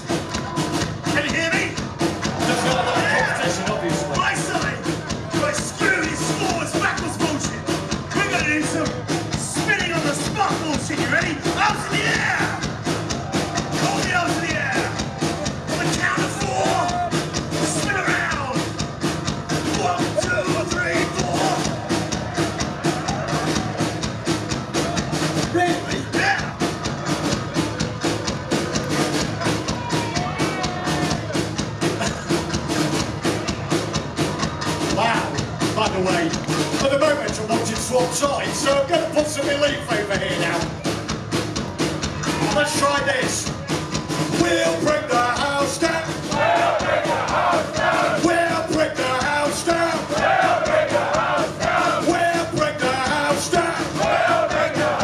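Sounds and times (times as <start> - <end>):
drum kit: 0.0 - 55.0
shouted vocals: 2.3 - 10.2, 11.1 - 18.6, 19.7 - 24.0, 29.4 - 31.4, 42.2 - 43.4, 44.3 - 55.0.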